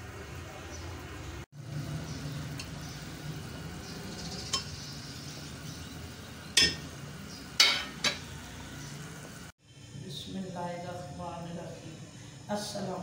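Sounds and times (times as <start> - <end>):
metal ladle clinking against pot: 6.6 - 6.8, 7.6 - 8.2.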